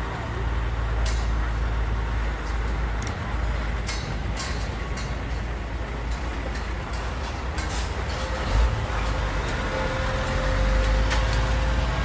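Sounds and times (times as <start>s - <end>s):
low construction rumble: 0.0s - 12.0s
metal scaffolding clanking: 6.1s - 11.6s.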